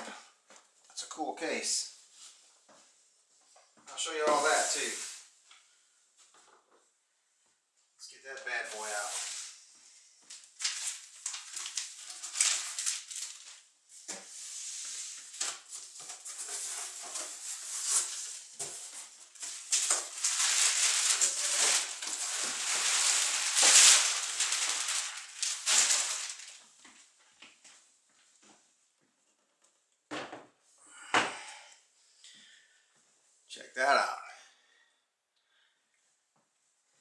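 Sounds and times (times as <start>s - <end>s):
cardboard rustling and scraping: 14.2s - 26.6s.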